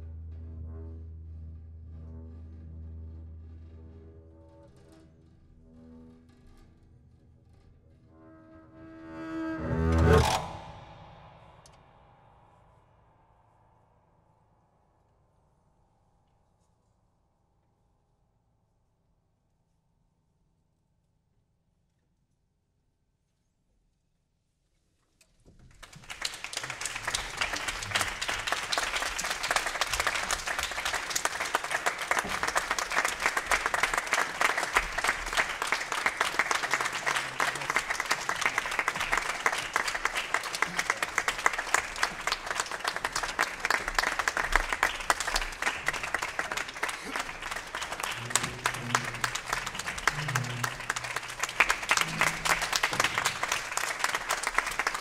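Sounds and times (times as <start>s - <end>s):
audience applauding: 25.7s - 55.0s.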